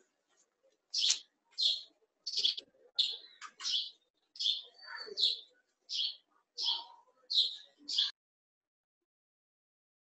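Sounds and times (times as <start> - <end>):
small bird chirping: 0.9 - 8.1.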